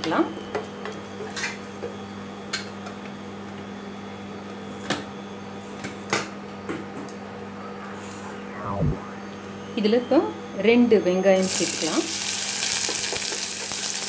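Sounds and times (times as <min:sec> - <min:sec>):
low hum: 0:07.4 - 0:10.1
spices sizzling in oil: 0:11.4 - 0:14.0.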